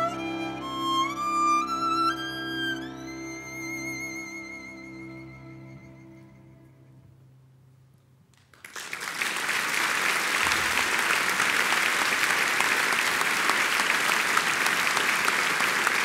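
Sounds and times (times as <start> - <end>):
audience applauding: 8.4 - 16.0.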